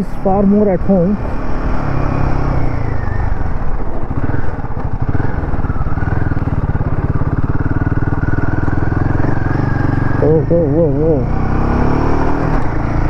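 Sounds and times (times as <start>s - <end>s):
motorcycle engine pulsing: 0.0s - 13.0s.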